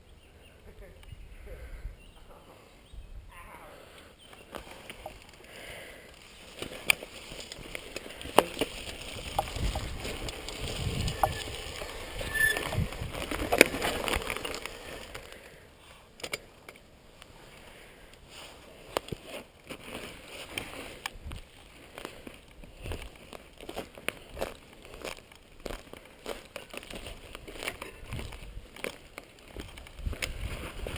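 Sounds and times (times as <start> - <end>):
bike tyre rumble on dirt: 4.4 - 15.7, 17.4 - 30.9
bike rattling over bumps: 6.2 - 15.5.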